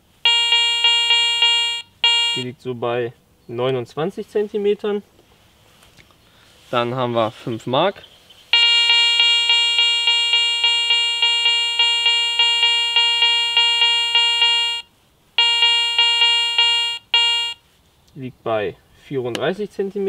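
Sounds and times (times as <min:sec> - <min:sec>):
metal detector buzzy beep: 0:00.3 - 0:02.4, 0:08.6 - 0:17.6.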